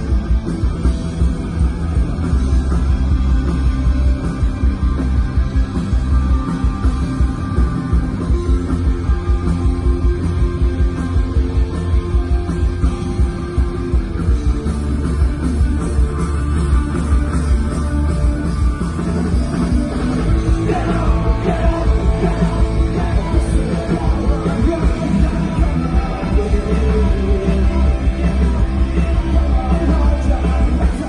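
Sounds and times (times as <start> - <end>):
live rock band playing: 0.0 - 31.0
person singing: 20.3 - 31.0.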